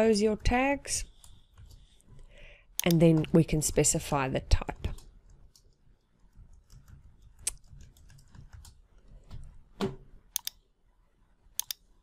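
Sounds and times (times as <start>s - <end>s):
keyboard typing: 4.7s - 9.5s, 10.4s - 10.6s.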